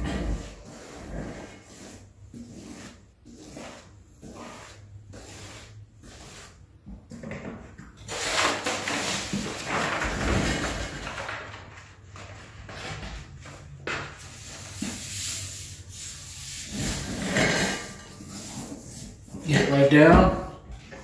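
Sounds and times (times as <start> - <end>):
brush scrubbing glue: 0.2 - 6.8
paper rustling and crinkling: 8.1 - 13.1.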